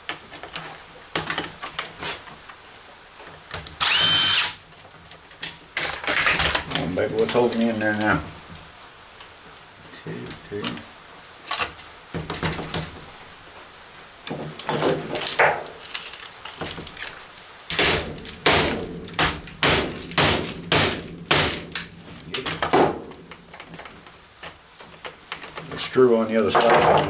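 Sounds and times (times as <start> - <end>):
metal knocks and clanks: 26.4 - 27.0.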